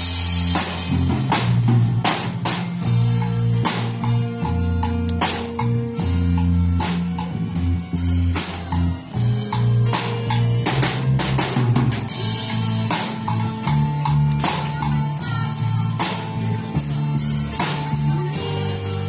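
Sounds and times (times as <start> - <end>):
pop backing track: 0.0 - 19.0.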